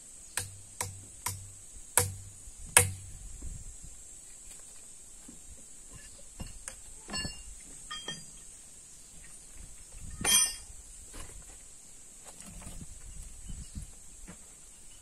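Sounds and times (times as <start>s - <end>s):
hammer striking steel: 0.4s - 3.0s, 10.2s - 10.6s.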